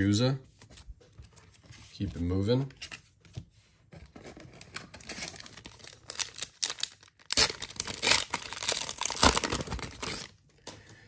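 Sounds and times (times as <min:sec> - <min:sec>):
foil pack crinkling: 0:05.0 - 0:10.3.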